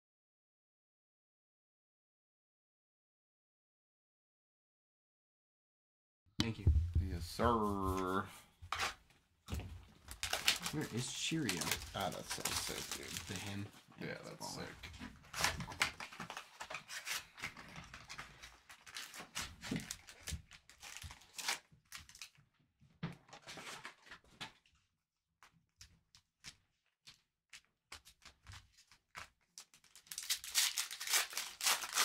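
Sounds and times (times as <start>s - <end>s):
wrapper crinkling and tearing: 10.0s - 13.7s, 15.3s - 22.4s, 28.8s - 32.0s.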